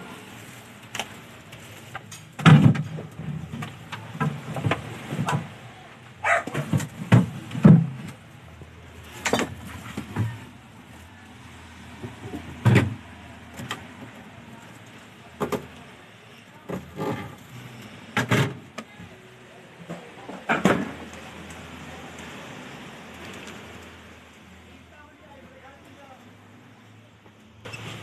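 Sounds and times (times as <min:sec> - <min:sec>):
refrigerator drawer knocks and clunks: 0:02.4 - 0:03.0.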